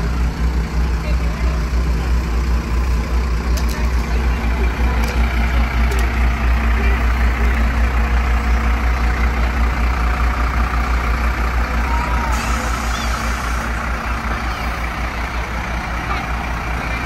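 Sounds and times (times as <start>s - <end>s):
truck diesel engine rumbling: 0.0s - 17.0s.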